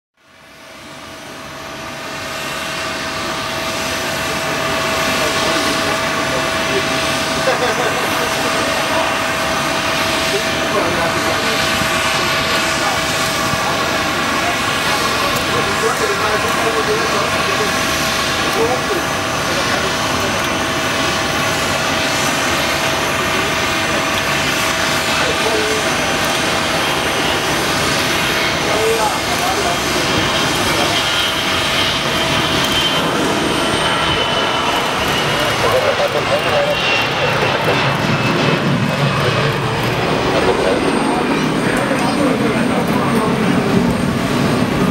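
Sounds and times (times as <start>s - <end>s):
jet engines roaring with whine: 0.2s - 44.9s.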